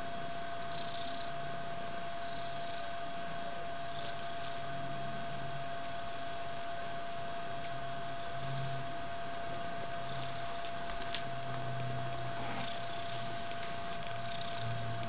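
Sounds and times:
constant high-pitched hum: 0.0 - 15.0
cat purring: 0.5 - 4.8, 9.6 - 15.0.

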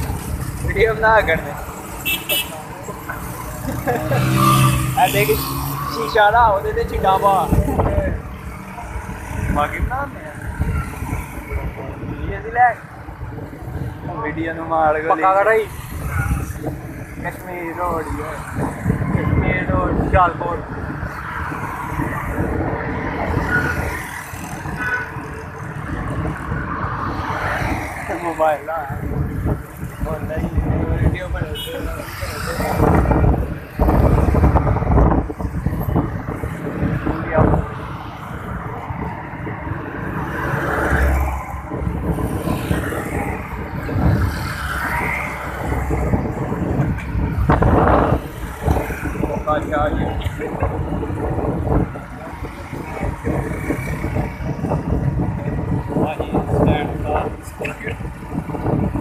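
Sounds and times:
cars and motorcycles passing: 0.0 - 59.0
wind on microphone: 3.6 - 59.0.

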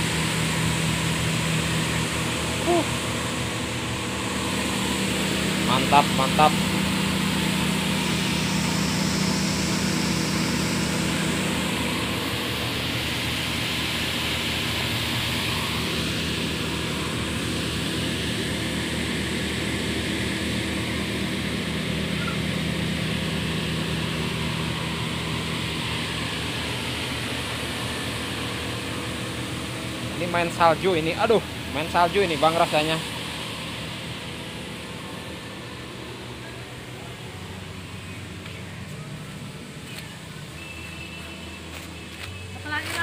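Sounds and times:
grinding machine motor hum: 0.0 - 43.0.

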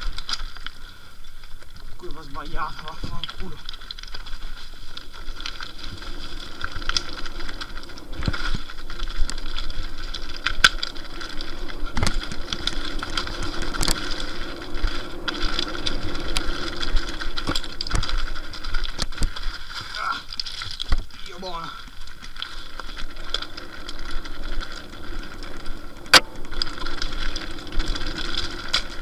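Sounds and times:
tyres on loose stones: 0.0 - 29.0
bicycle freehub buzzing: 3.7 - 19.8.

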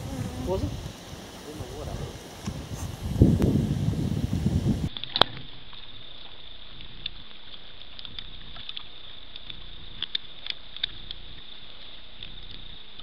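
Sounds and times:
pigs rooting and feeding: 4.9 - 13.0
high-pitched hum: 5.8 - 13.0.

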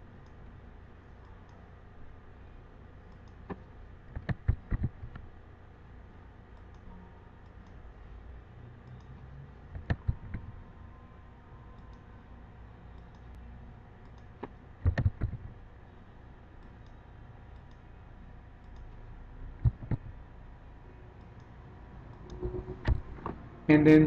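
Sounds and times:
low steady hum: 0.0 - 24.0
computer mouse clicking: 3.1 - 5.2, 6.6 - 6.8, 8.8 - 10.5, 13.0 - 13.3, 14.0 - 15.5, 16.6 - 17.8, 19.6 - 20.1.

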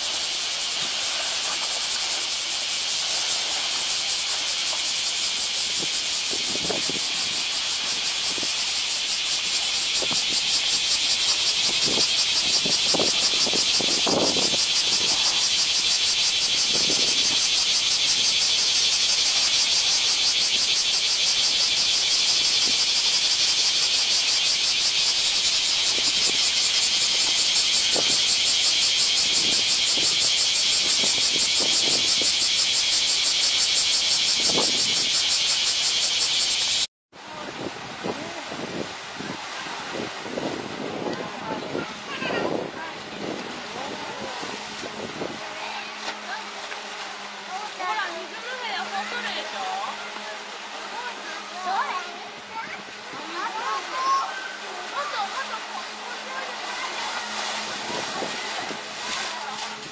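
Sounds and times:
elephant splashing water: 0.0 - 8.5, 37.3 - 59.9
steady high hiss: 0.0 - 42.9.

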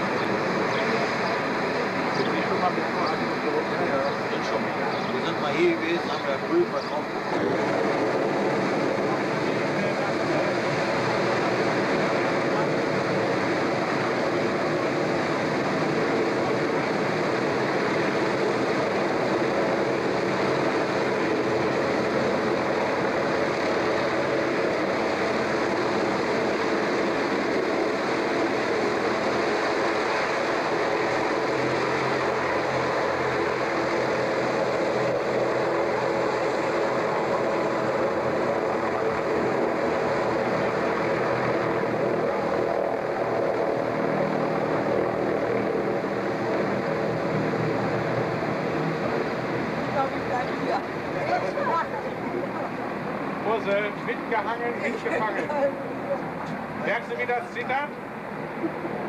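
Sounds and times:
hovercraft engines droning: 0.0 - 59.0.

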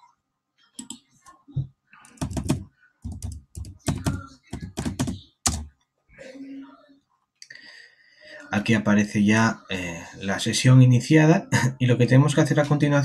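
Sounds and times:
typing on a keyboard: 0.8 - 1.0, 2.0 - 5.7.

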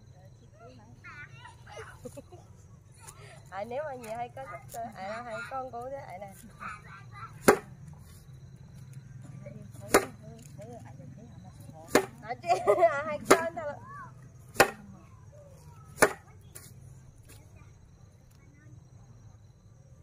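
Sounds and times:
grass bundle slapping a board: 7.4 - 8.2, 9.8 - 10.5, 11.8 - 12.2, 13.2 - 13.6, 14.5 - 14.9, 16.0 - 17.4.

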